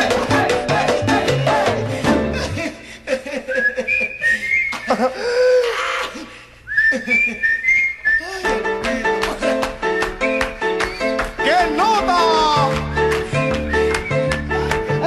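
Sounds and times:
whistled melody: 0:03.5 - 0:05.1, 0:06.7 - 0:08.7, 0:09.8 - 0:15.0.

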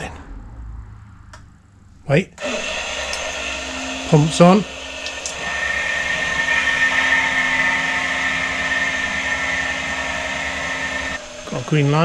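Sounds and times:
electric pump whine and hiss: 0:02.4 - 0:12.0.

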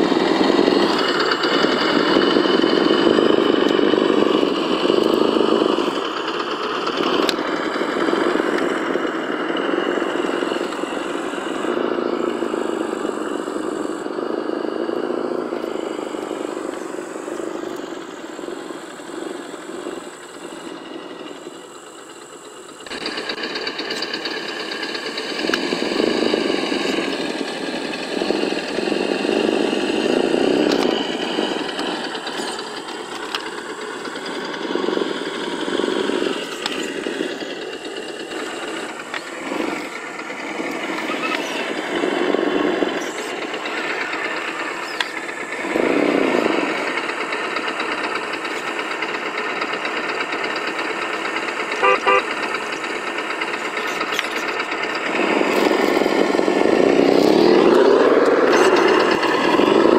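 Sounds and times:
simulated engine revving from speaker: 0:34.2 - 0:48.6, 0:51.8 - 0:52.5, 0:55.0 - 0:59.9.

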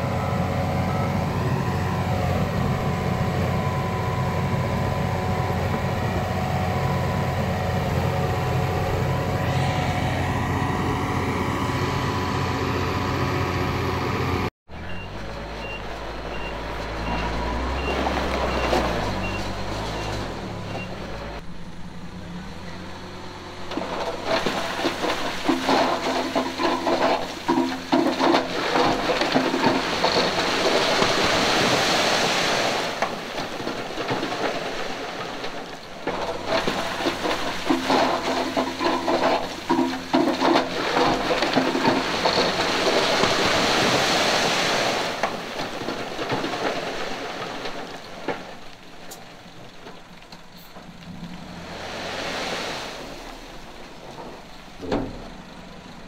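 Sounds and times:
diesel engine running: 0:00.0 - 0:56.0
rock and earth rumbling: 0:14.7 - 0:56.0.

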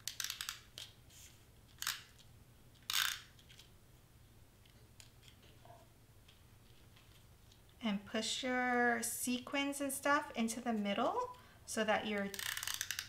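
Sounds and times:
adhesive tape rasping: 0:12.3 - 0:13.0.

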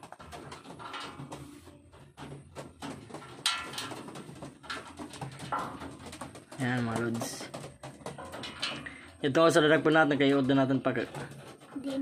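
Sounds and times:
pigeon wings flapping: 0:00.0 - 0:08.6
pigeons knocking and rustling: 0:00.0 - 0:12.0.

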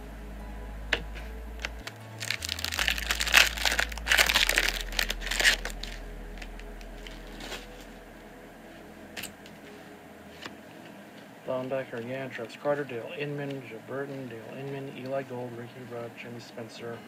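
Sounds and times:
wrapper tearing and crinkling: 0:01.6 - 0:07.9.

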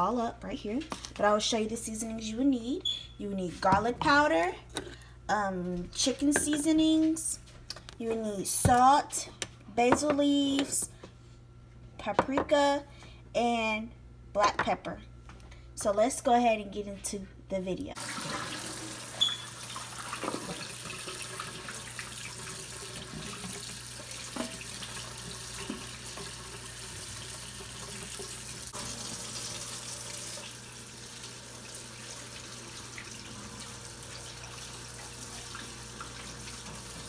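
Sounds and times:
tap water running into sink: 0:18.0 - 0:37.0.

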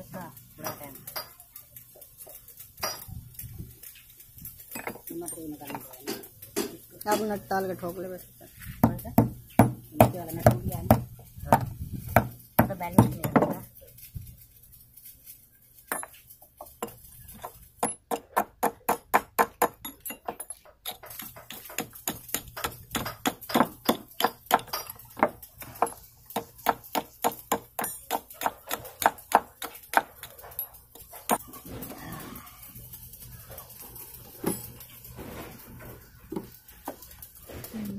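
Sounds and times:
hammer striking metal nut: 0:16.8 - 0:31.4.

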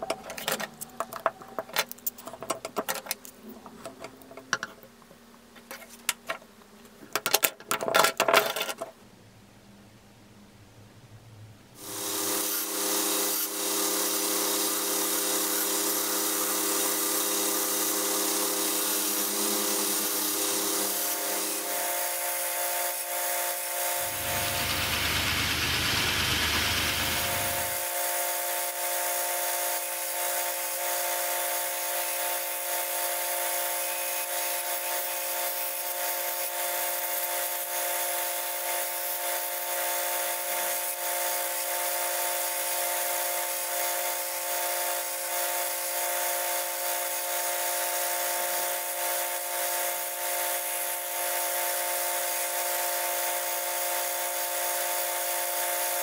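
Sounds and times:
belt grinder motor hum: 0:24.0 - 0:28.0.

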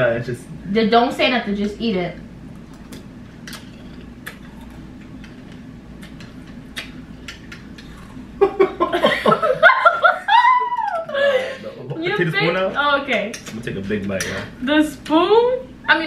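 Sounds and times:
people laughing: 0:08.4 - 0:12.4.

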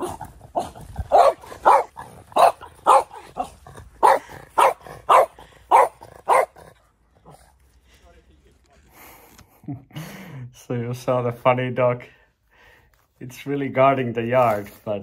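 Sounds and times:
dog barking: 0:00.0 - 0:06.6.

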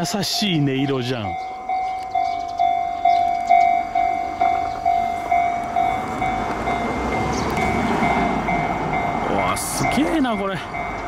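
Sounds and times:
level-crossing alarm bell: 0:00.0 - 0:11.0
train rumble: 0:00.0 - 0:11.0.

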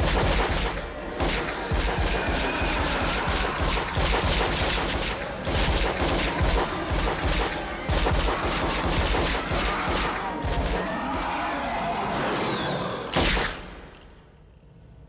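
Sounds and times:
handguns firing rapidly: 0:00.0 - 0:11.1.

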